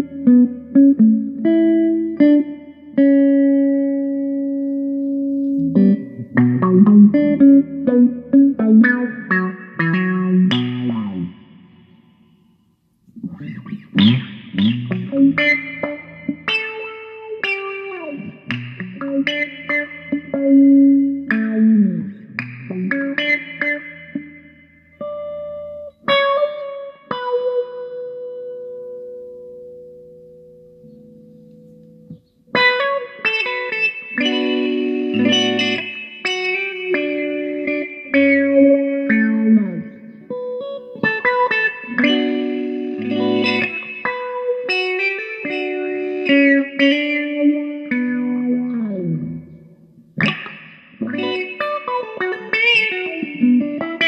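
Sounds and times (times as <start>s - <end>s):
electric guitar with wah effect: 0.0s - 54.0s.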